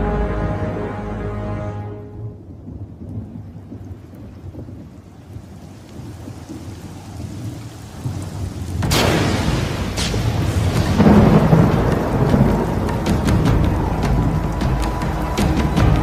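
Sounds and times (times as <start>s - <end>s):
thunder rumbling: 2.1s - 16.0s
rain hissing: 2.2s - 16.0s
sharp thunderclap: 8.0s - 16.0s.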